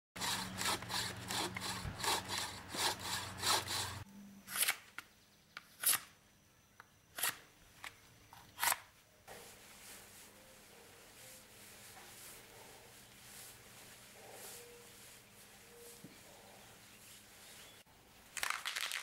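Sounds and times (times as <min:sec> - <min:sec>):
bow saw cutting log: 0:00.2 - 0:04.7.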